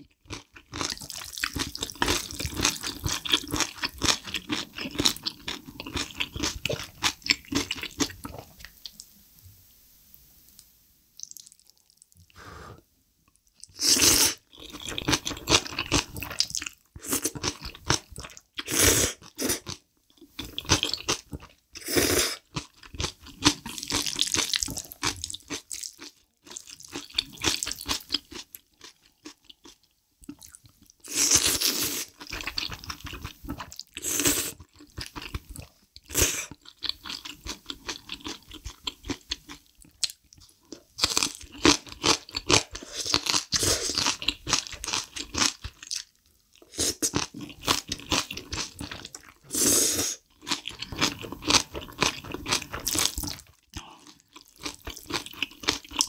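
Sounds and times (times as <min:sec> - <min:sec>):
loud noodle slurps: 0:49.5 - 0:50.2.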